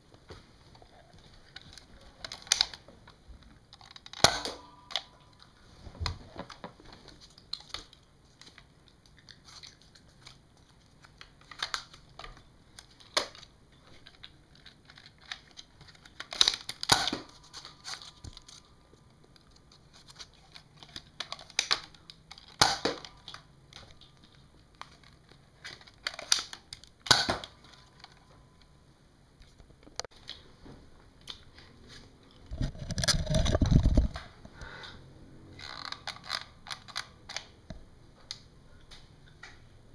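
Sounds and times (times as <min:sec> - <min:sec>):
camera handling rumble: 0:32.4 - 0:34.6.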